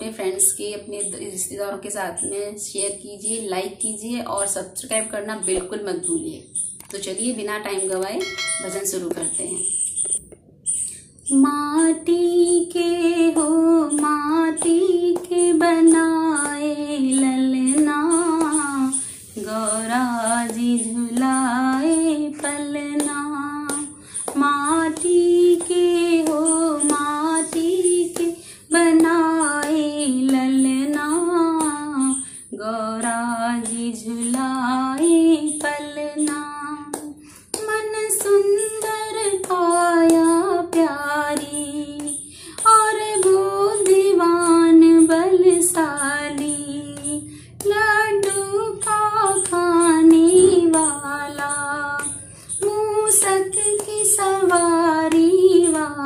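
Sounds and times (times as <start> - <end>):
woman singing devotional song: 0.0 - 10.2, 10.8 - 56.0
high ticking beat: 5.4 - 32.4.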